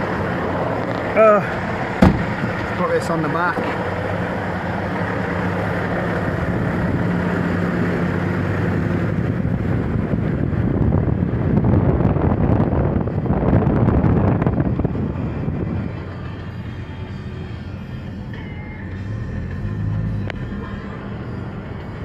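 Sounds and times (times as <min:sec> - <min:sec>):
handling rumble: 0:00.0 - 0:07.4
car engine running: 0:00.0 - 0:22.0
wind on microphone: 0:05.8 - 0:16.4.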